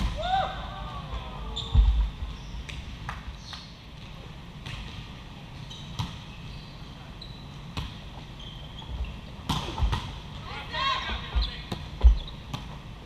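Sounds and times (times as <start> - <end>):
volleyballs hit and bouncing: 1.7 - 6.4, 7.6 - 8.4, 9.4 - 10.5, 11.1 - 13.0
sneaker squeaks on court: 5.6 - 10.0, 11.4 - 12.7.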